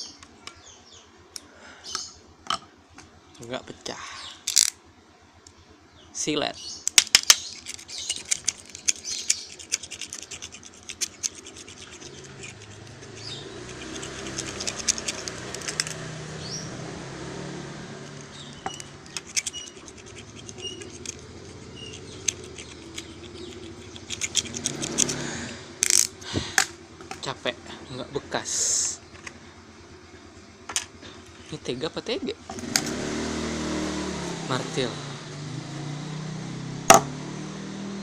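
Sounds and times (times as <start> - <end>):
knife blade scraping glass: 7.4 - 16.0, 18.1 - 25.2.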